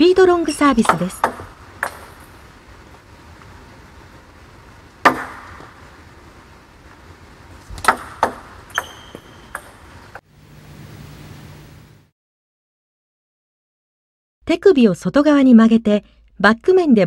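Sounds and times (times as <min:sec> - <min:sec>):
ball bouncing sharp clicks: 0:00.8 - 0:02.3, 0:07.7 - 0:09.9
table tennis racket hitting ball: 0:00.8 - 0:02.3, 0:05.0 - 0:05.8, 0:07.7 - 0:09.9.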